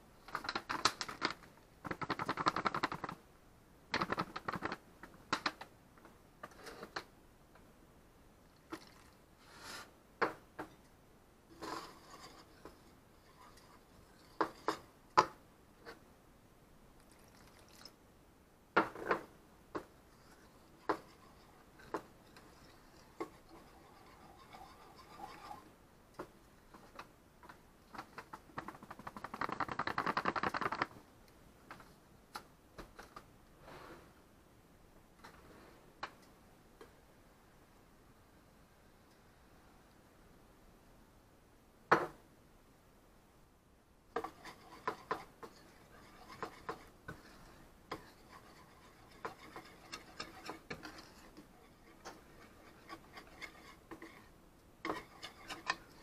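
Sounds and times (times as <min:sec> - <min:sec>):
whisk scraping in bowl: 0:11.5 - 0:14.8, 0:20.1 - 0:25.7, 0:44.2 - 0:56.0
whisk tapping bowl: 0:19.8 - 0:25.6, 0:44.2 - 0:56.0.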